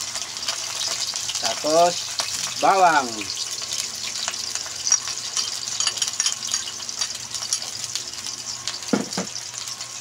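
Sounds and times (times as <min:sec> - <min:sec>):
onion and garlic sizzling in oil: 0:00.0 - 0:10.0
clink on ceramic saucer: 0:04.9 - 0:07.7.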